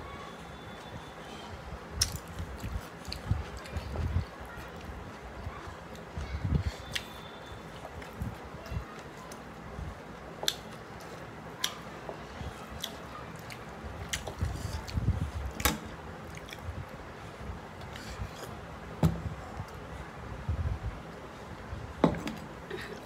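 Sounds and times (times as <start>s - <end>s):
person chewing: 12.6s - 15.6s, 16.2s - 16.7s.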